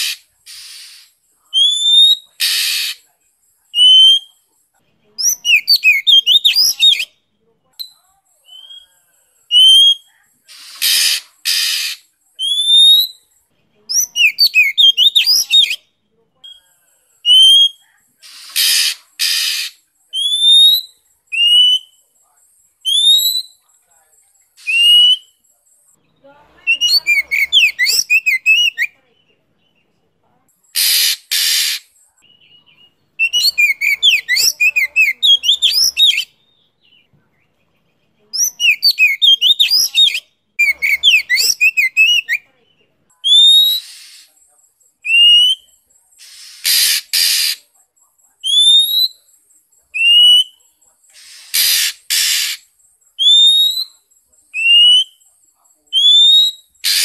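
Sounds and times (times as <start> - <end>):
harsh rasping bird notes: 0.0 - 3.0, 9.6 - 12.1, 17.3 - 20.4, 30.8 - 31.9, 46.2 - 47.6, 51.2 - 52.7
bird warbling song: 26.0 - 28.9, 32.3 - 37.1.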